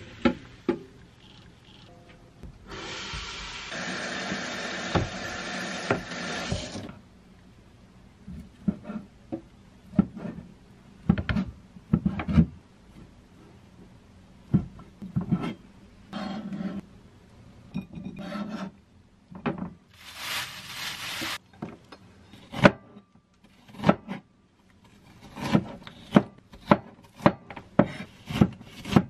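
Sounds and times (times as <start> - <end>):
loud steady rushing hiss: 2.7 - 6.4.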